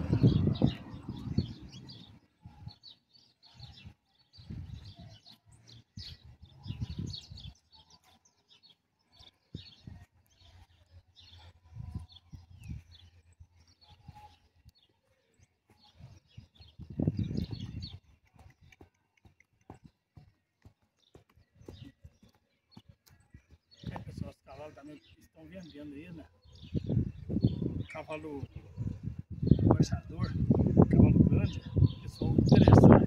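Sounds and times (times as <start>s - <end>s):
low rumble: 0.0s - 2.2s
small birds chirping: 0.0s - 33.0s.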